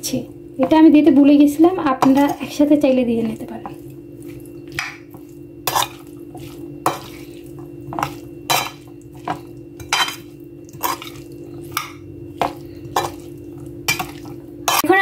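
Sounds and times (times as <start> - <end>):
spoon scraping against bowl: 3.6 - 15.0.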